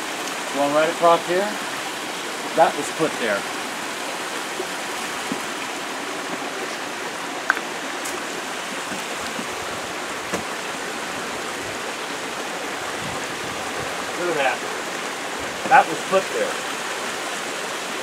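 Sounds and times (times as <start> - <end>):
creek water flowing over rocks: 0.0 - 18.0
footsteps on stony creek bed: 5.1 - 10.6.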